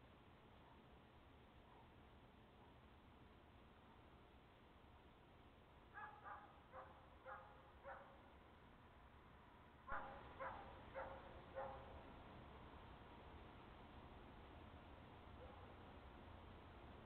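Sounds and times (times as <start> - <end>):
distant dog barking: 0.6 - 0.9, 1.6 - 2.8, 5.9 - 8.2, 9.9 - 12.0, 15.4 - 15.8.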